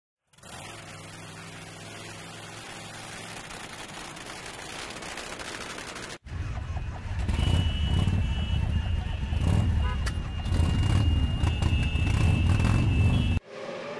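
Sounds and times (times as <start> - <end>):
several motorcycle engines rumbling: 0.3 - 13.4
motorcycle engine idling: 6.2 - 11.9.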